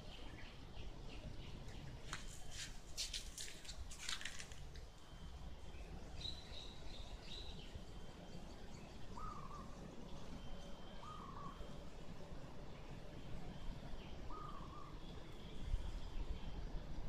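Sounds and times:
birds calling: 0:09.0 - 0:10.3, 0:11.0 - 0:11.6.

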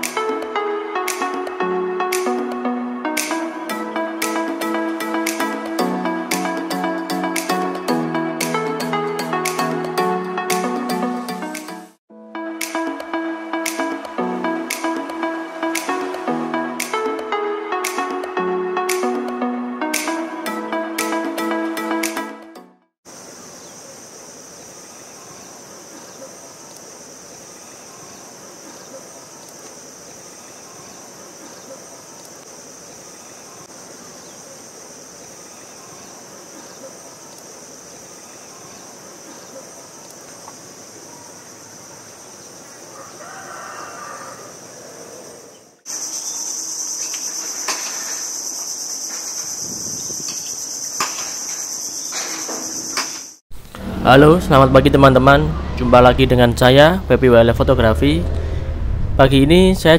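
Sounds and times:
wetland ambience: 0:23.1 - 0:59.9
high-pitched insect drone: 0:45.9 - 0:54.0.

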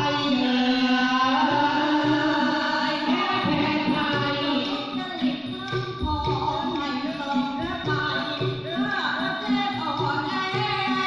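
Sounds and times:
group singing folk song: 0:00.0 - 0:05.8.

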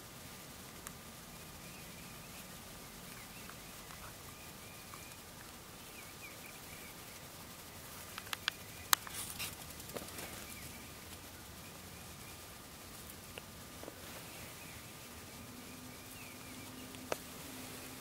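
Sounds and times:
outdoor hiss: 0:00.0 - 0:18.0
faint bird calls: 0:00.7 - 0:18.0
short rustle: 0:02.1 - 0:18.0
sharp clicks: 0:08.1 - 0:10.6.

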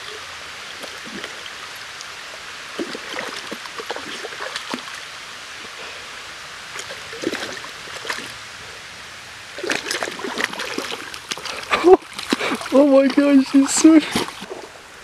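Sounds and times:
shallow stream running: 0:00.0 - 0:15.0
dog splashing in water: 0:09.6 - 0:14.6.

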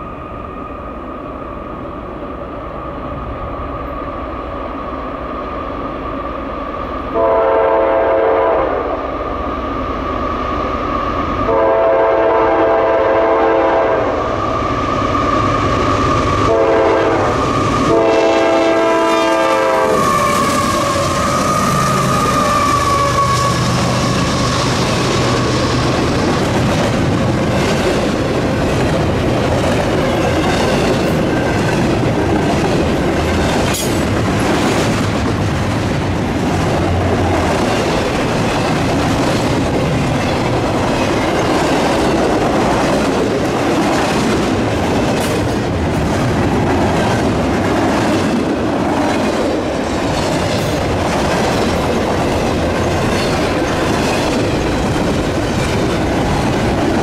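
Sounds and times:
freight train rumbling past: 0:00.0 - 0:57.0
locomotive engine hum: 0:00.0 - 0:57.0
train horn: 0:07.1 - 0:09.0, 0:11.5 - 0:14.3, 0:16.4 - 0:25.6
wheels clicking over rail joints: 0:20.0 - 0:57.0.

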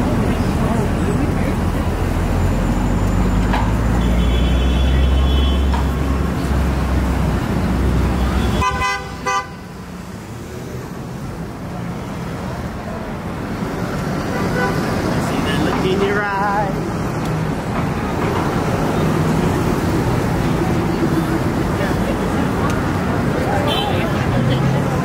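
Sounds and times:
street traffic hum: 0:00.0 - 0:25.0
vehicle engine rumbling: 0:00.0 - 0:25.0
car horn toots: 0:08.2 - 0:09.7.

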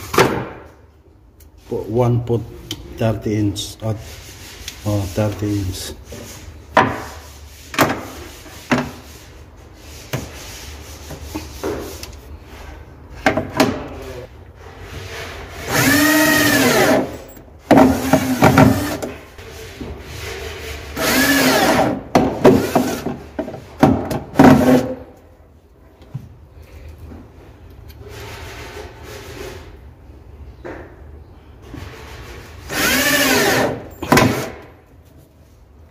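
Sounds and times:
cordless drill driving screws: 0:15.7 - 0:17.1, 0:32.7 - 0:34.5.

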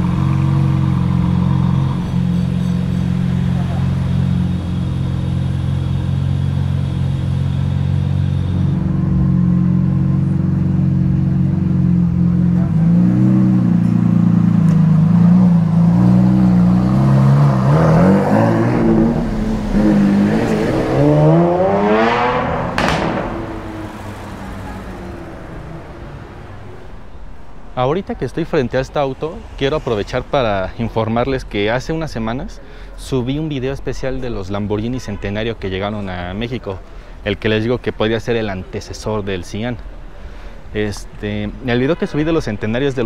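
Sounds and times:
sports car engine revving: 0:00.0 - 0:26.9.

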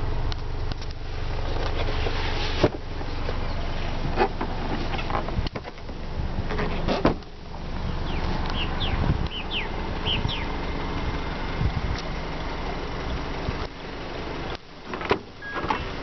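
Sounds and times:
steady low rumble: 0:00.0 - 0:16.0
tailgate shutting thump: 0:06.5 - 0:07.3, 0:14.9 - 0:15.9.

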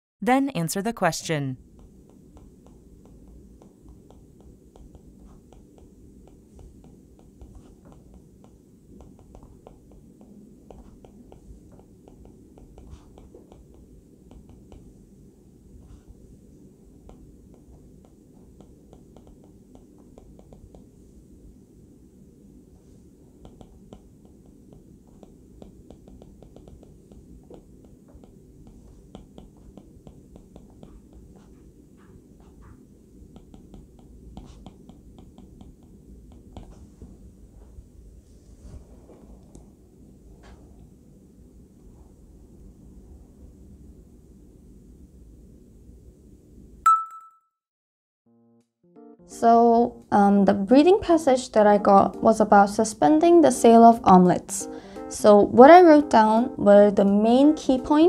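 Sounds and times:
stylus tapping on glass screen: 0:17.0 - 0:20.9, 0:23.4 - 0:31.6.

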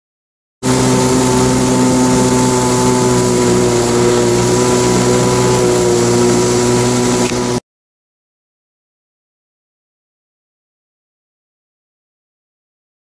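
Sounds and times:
jet ski engine running: 0:00.6 - 0:07.6
water and spray hissing: 0:00.6 - 0:07.6.

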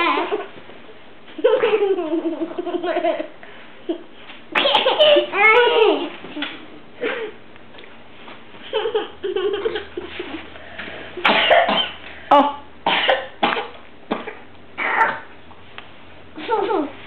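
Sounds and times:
young child coughing: 0:04.6 - 0:05.3, 0:11.2 - 0:12.0, 0:12.9 - 0:14.4
child vocal sounds: 0:14.8 - 0:15.3.

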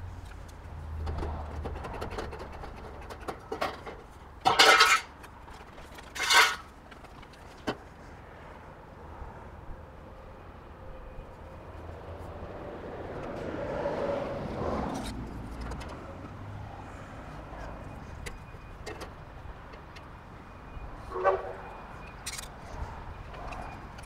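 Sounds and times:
road vehicle passing by: 0:10.3 - 0:18.3.

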